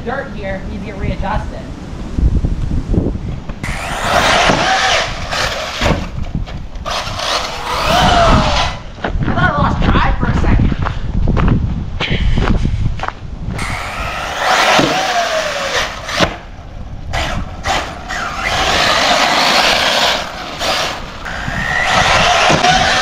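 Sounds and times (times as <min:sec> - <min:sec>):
rc car motor whine: 0:03.6 - 0:06.2, 0:06.8 - 0:08.8, 0:13.6 - 0:16.4, 0:17.1 - 0:23.0
tires hissing on dirt: 0:03.6 - 0:06.2, 0:06.8 - 0:08.9, 0:13.6 - 0:16.4, 0:17.1 - 0:23.0.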